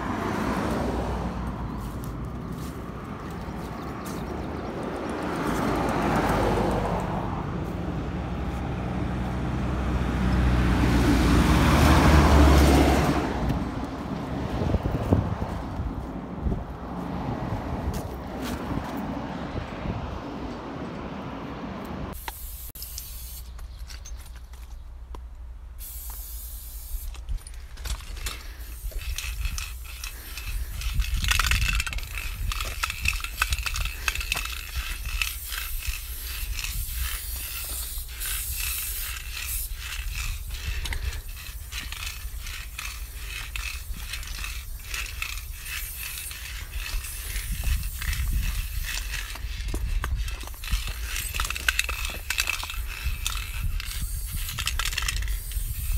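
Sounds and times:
spray paint can hissing: 22.1s - 23.8s, 25.8s - 27.4s, 28.0s - 55.9s
spray can clicks and rattles: 22.2s - 24.2s, 25.8s - 55.9s
constant low rumble: 26.5s - 55.9s.

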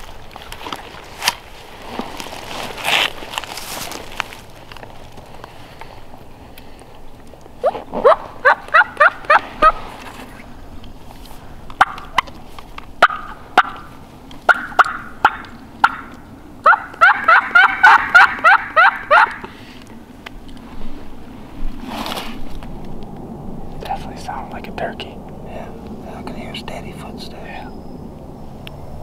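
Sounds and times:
turkey yelping: 7.6s - 9.9s, 11.8s - 12.3s, 13.0s - 13.9s, 14.5s - 19.5s
turkey clucks: 7.6s - 10.0s, 11.8s - 12.4s, 13.0s - 13.9s, 14.5s - 19.6s.

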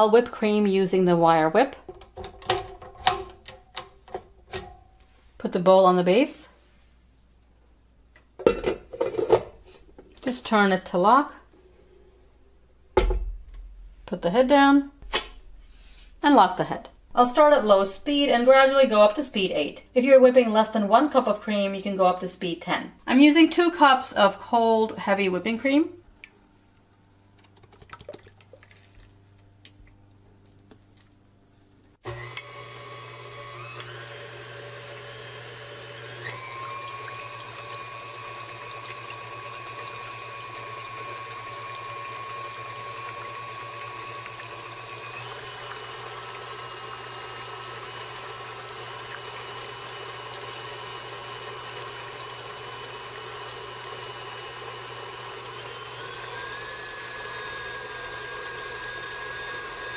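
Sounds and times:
stand mixer whining: 32.0s - 59.9s.

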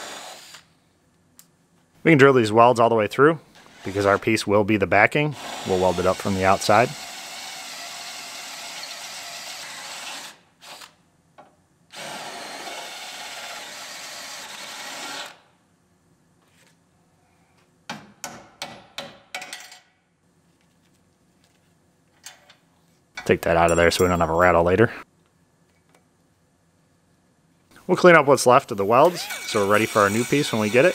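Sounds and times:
power drill boring into steel: 0.0s - 0.7s, 5.4s - 10.9s, 29.0s - 30.9s.

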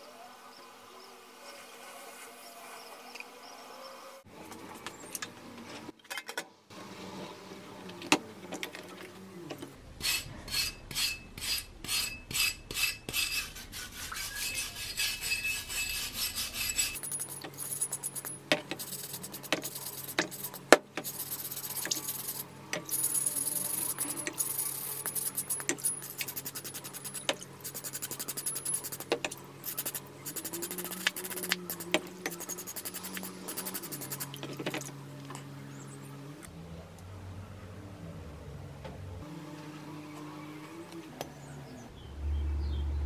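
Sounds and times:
wire brush scrubbing metal in water: 10.0s - 34.9s.

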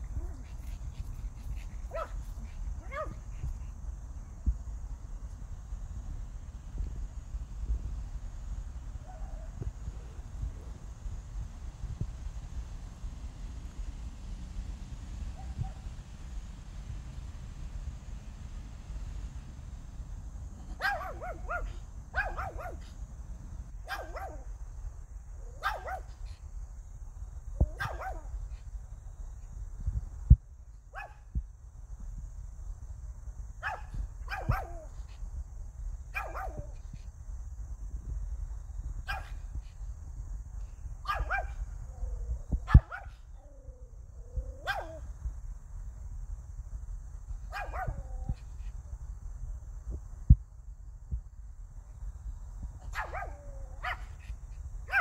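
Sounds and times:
low wind rumble: 0.0s - 55.0s
dog barking in sharp yaps: 2.8s - 3.2s, 20.8s - 22.9s, 23.8s - 24.4s, 25.6s - 26.1s, 27.7s - 28.3s, 33.6s - 34.9s, 36.2s - 36.7s, 39.1s - 39.4s, 41.1s - 41.6s, 42.7s - 43.2s, 44.6s - 45.0s, 47.5s - 48.0s, 52.9s - 54.3s.

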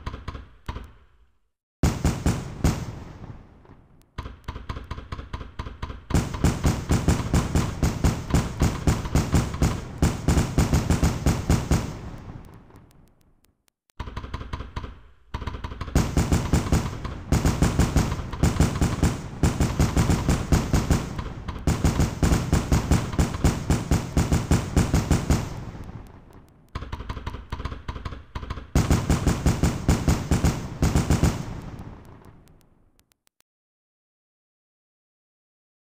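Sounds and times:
fireworks bangs and crackles: 1.8s - 4.2s, 6.0s - 13.5s, 15.8s - 33.0s.

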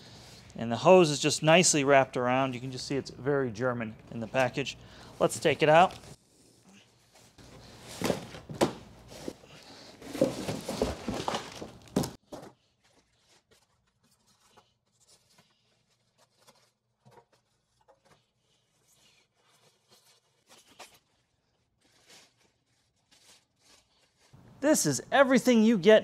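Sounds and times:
packaging rustling and rubbing: 10.0s - 24.4s.

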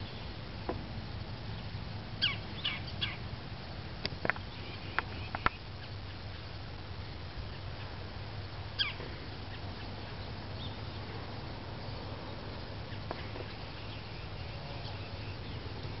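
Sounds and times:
low background rumble: 0.0s - 16.0s
woodpecker calling: 1.5s - 3.4s, 4.2s - 16.0s.

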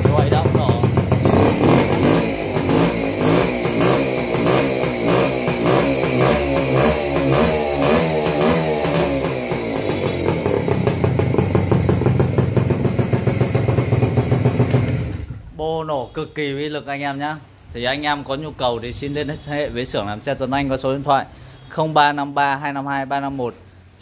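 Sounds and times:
motorcycle engine revving and idling: 0.0s - 15.4s.

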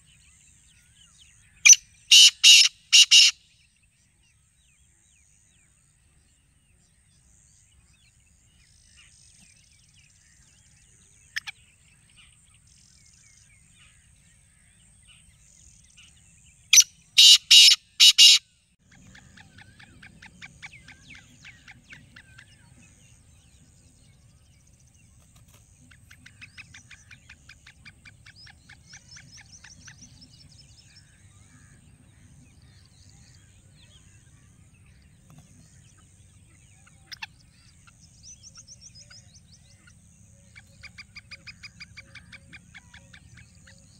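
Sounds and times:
bird harsh rasping call: 1.7s - 3.5s, 16.8s - 22.5s.

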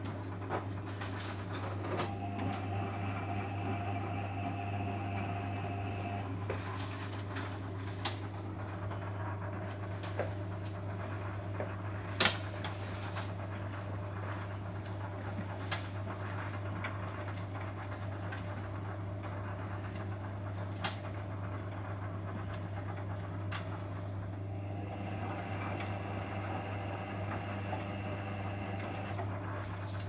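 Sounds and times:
motor hum: 1.5s - 11.8s, 18.8s - 30.0s
washing machine drum turning: 24.4s - 29.3s.

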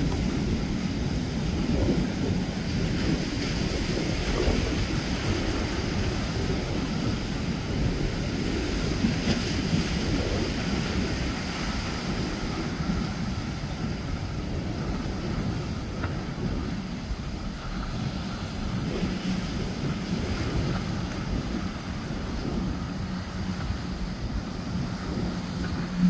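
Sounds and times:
boat engine running: 0.0s - 26.0s
surf: 0.0s - 26.0s
wind rumbling on microphone: 0.0s - 26.0s.

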